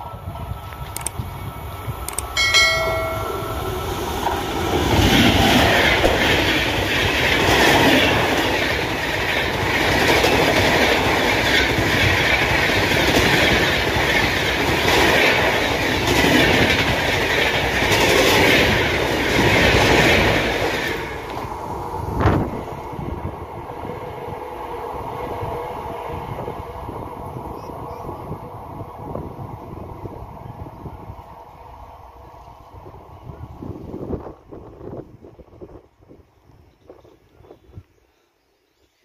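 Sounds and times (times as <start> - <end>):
train rushing past: 0.0 - 35.7
wheels clacking over rail joints: 2.2 - 21.6.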